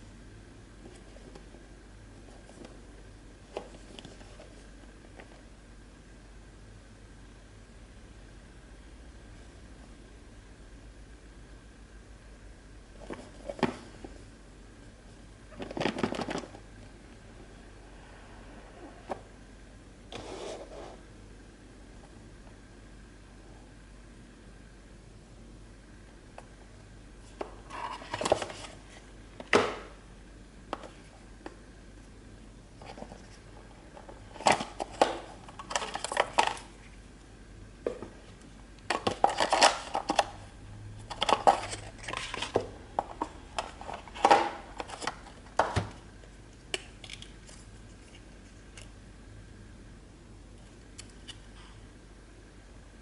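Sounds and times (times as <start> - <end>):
cardboard and plastic rustling: 2.2 - 5.5, 13.0 - 14.2, 15.5 - 16.6, 27.2 - 29.6, 41.1 - 46.0.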